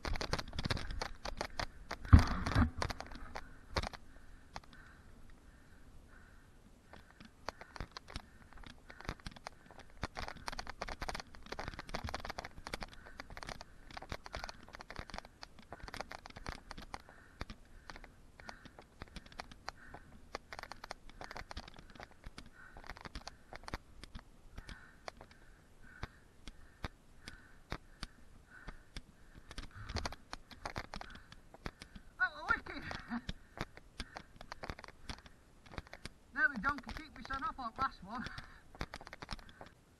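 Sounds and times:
bike rattles and knocks: 0:00.0 - 0:04.0, 0:07.1 - 0:23.8.

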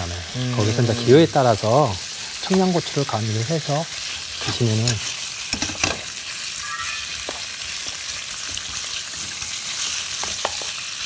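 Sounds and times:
meat sizzling in oil: 0:00.0 - 0:11.0
wooden spatula knocking on pan: 0:10.2 - 0:10.7.

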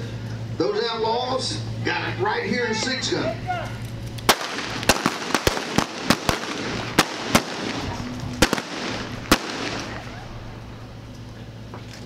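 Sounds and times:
gunshots: 0:04.3 - 0:10.1.

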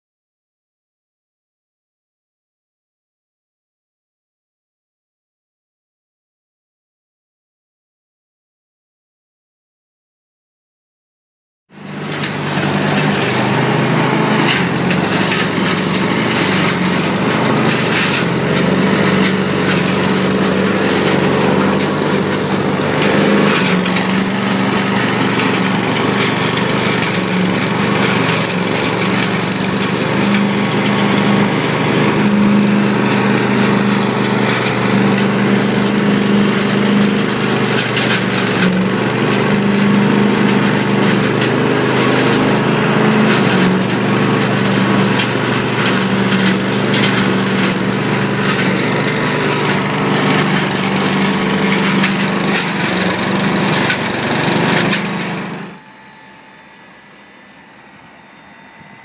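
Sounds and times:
leaf loader engine running: 0:11.7 - 0:59.0
leaves rattling through hose: 0:11.8 - 0:55.8.

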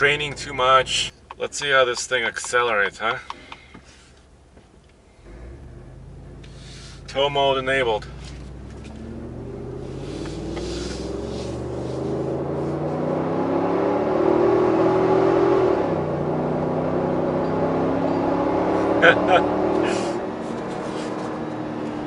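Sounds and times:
truck engine accelerating hard: 0:05.2 - 0:22.0.

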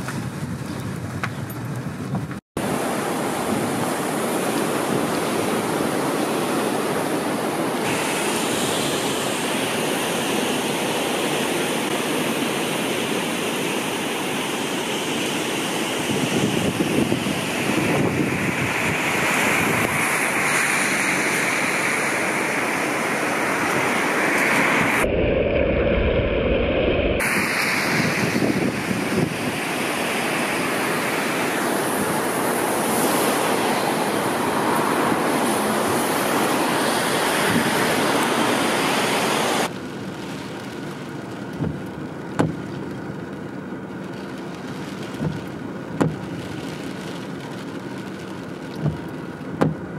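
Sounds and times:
road traffic: 0:00.0 - 0:11.9, 0:15.8 - 0:25.3, 0:26.0 - 0:49.9
wind on microphone: 0:16.0 - 0:39.7
sharp knocks: 0:42.4 - 0:42.6, 0:46.0 - 0:46.2, 0:49.6 - 0:49.8.

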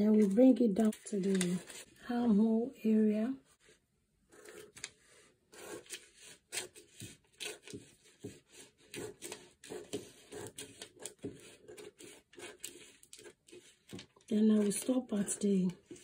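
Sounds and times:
scissors snipping paper: 0:05.6 - 0:16.0.

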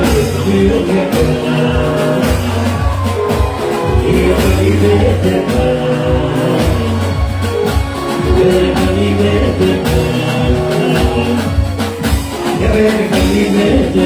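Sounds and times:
live band music: 0:00.0 - 0:14.0
man singing into microphone: 0:00.0 - 0:14.0.

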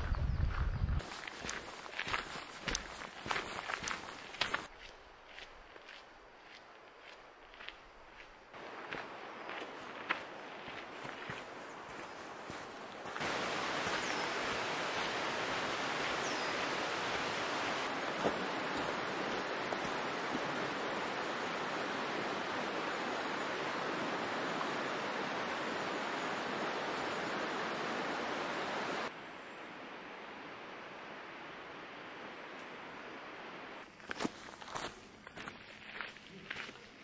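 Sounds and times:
flowing river water: 0:10.4 - 0:29.1.

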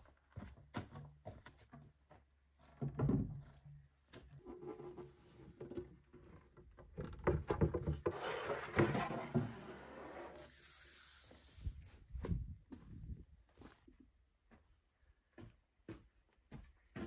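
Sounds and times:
wood knocking and scraping on wood: 0:05.6 - 0:09.7.

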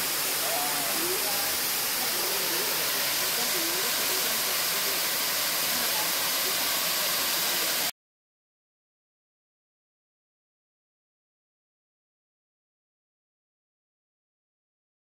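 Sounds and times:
waterfall rushing: 0:00.0 - 0:07.9.

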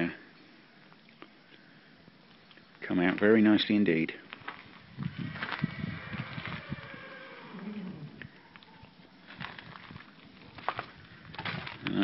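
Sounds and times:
footsteps crunching on gravel: 0:04.2 - 0:06.8, 0:09.0 - 0:12.0.

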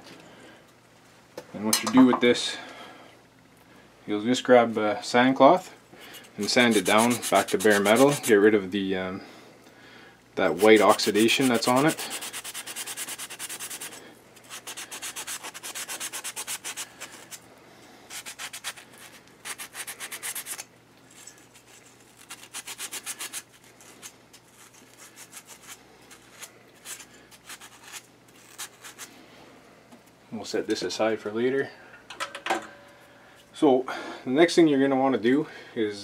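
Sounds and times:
sand cloth scraping metal rod: 0:06.2 - 0:08.4, 0:10.5 - 0:17.4.

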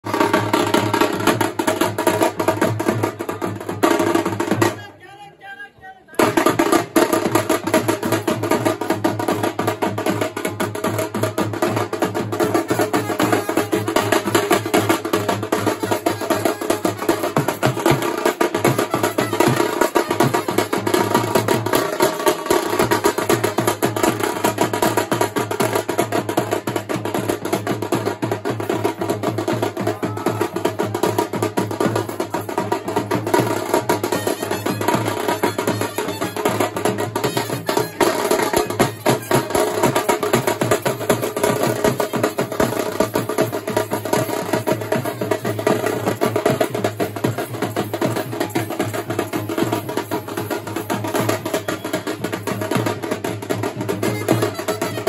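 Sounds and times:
drums beaten fast: 0:00.0 - 0:04.8, 0:06.2 - 0:55.0
crowd voices: 0:11.8 - 0:24.4, 0:28.9 - 0:41.8.

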